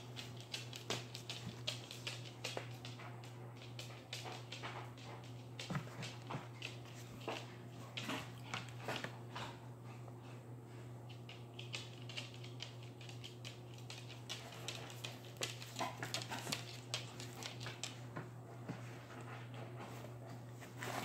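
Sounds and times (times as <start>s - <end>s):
cats scratching cardboard box: 19.8s - 21.0s.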